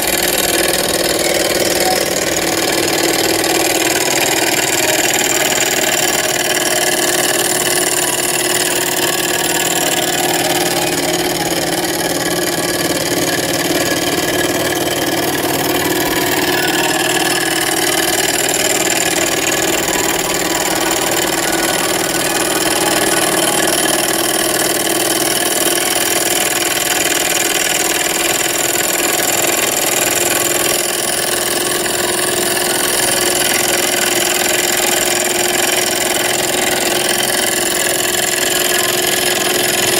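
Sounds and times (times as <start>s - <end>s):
small engine mechanical whirring: 0.0s - 39.9s.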